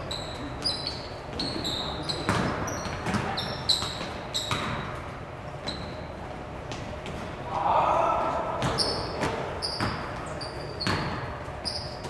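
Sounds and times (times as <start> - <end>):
sneakers squeaking on court: 0.0 - 7.3, 8.6 - 12.0
basketball bouncing on hardwood: 2.2 - 4.8, 8.6 - 10.1.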